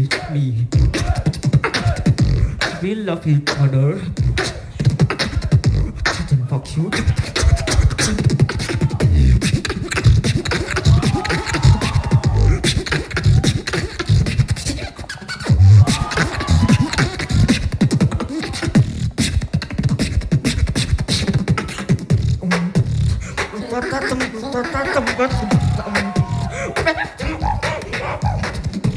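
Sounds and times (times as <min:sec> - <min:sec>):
beatboxing into a microphone: 0:00.0 - 0:28.9
hummed vocal glides: 0:04.0 - 0:19.4, 0:21.6 - 0:28.9.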